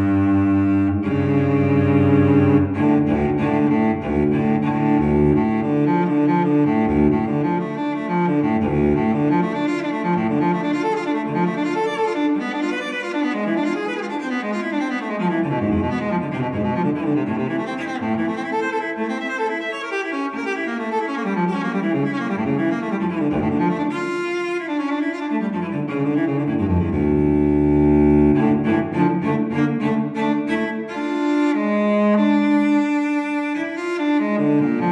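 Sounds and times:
sad solo cello piece: 0.0 - 34.9.

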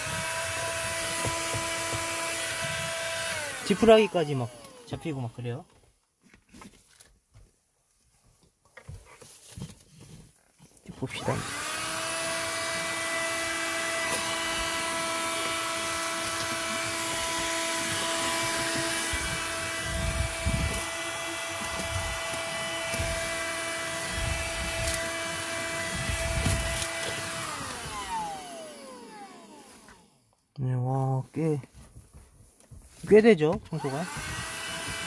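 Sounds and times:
vacuum cleaner motor whine: 0.0 - 5.3, 11.0 - 30.2, 33.6 - 35.0.

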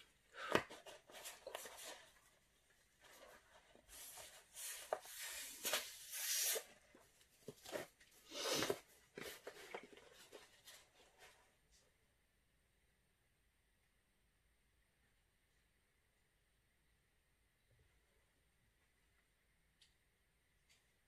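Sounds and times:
rustling and rubbing bursts: 0.7 - 11.5.

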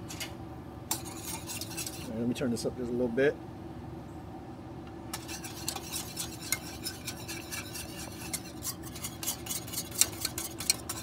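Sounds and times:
whisk clicking against saucepan: 5.2 - 11.0.

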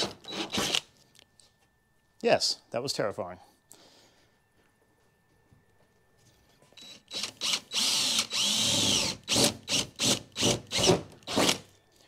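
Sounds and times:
drill drilling through sheet metal: 0.0 - 0.8, 6.8 - 11.6.

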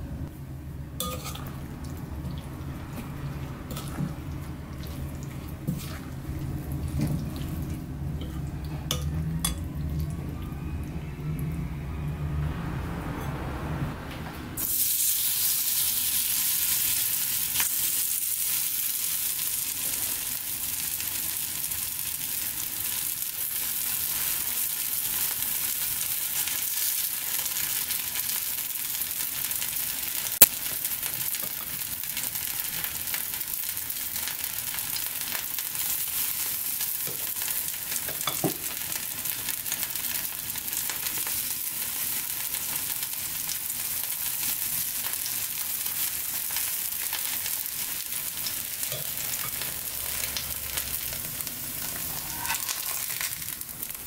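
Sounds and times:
batter sizzling in oil: 14.6 - 54.0.

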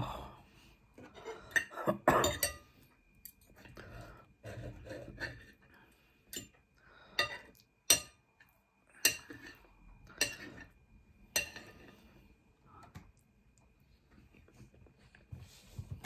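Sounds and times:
cutlery scraping a plate: 1.0 - 2.7, 3.3 - 5.6, 9.0 - 12.1
cutlery clinking on a plate: 1.4 - 3.5, 7.2 - 8.2, 9.0 - 11.9.

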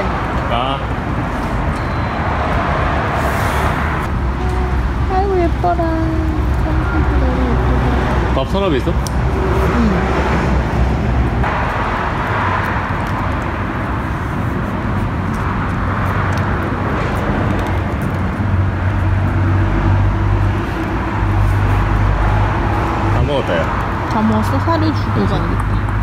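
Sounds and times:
motor vehicle rumble: 0.0 - 26.0.

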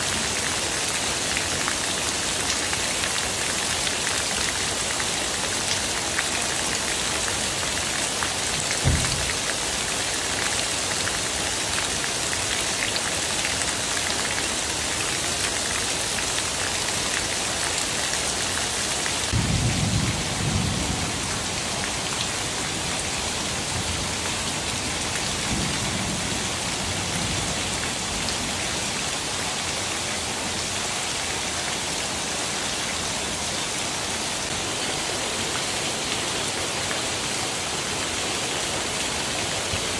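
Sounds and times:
heavy rain pouring: 0.0 - 39.9
rain falling on leaves: 0.0 - 39.9
runoff splashing on concrete: 1.2 - 19.6
short low thump: 8.8 - 9.3.

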